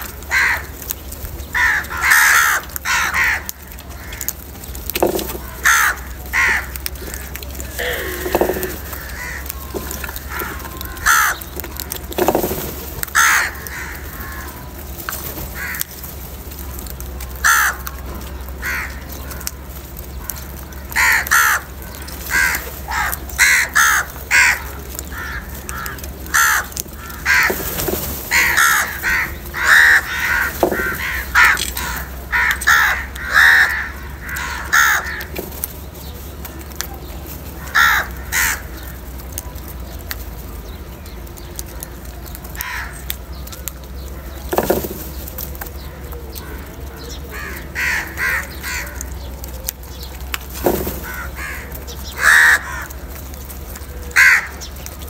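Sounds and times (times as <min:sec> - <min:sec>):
crow cawing: 0:00.0 - 0:00.8, 0:01.5 - 0:04.4, 0:05.0 - 0:14.8, 0:15.5 - 0:16.0, 0:17.4 - 0:35.5, 0:37.6 - 0:39.0, 0:42.6 - 0:43.1, 0:45.8 - 0:49.3, 0:50.6 - 0:53.3, 0:54.1 - 0:54.7.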